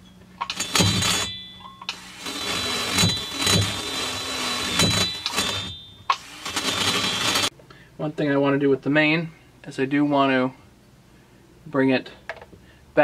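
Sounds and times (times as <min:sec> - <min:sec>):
high motor whine: 0:00.0 - 0:07.5
rotary tool grinding metal: 0:00.4 - 0:07.5.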